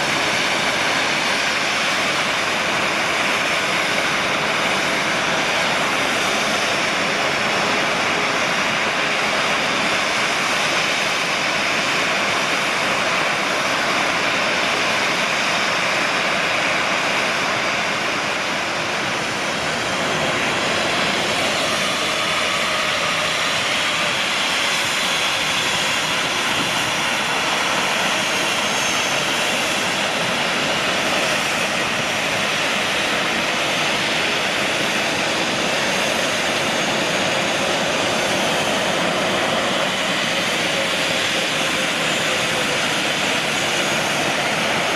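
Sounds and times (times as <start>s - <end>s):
jet engines idling: 0.0s - 44.9s.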